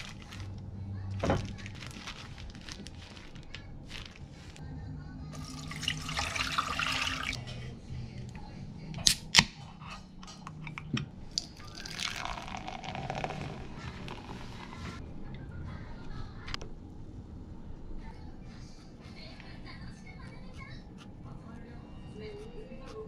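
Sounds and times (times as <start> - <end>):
drink pouring into metal tumbler: 5.4 - 7.4, 11.4 - 14.5.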